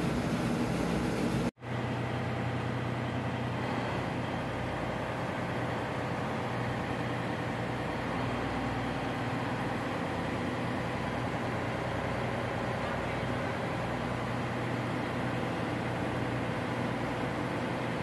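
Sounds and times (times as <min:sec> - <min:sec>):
low machinery hum: 0:00.0 - 0:18.0.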